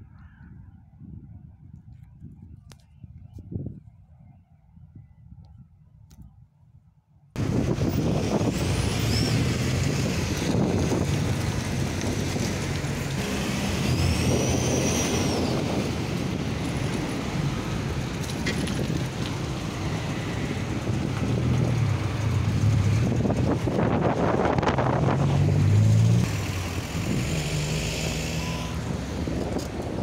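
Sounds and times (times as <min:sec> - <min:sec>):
traffic engines idling: 0:07.4 - 0:30.0
high squeal: 0:07.9 - 0:11.0, 0:13.2 - 0:17.7, 0:26.3 - 0:28.9.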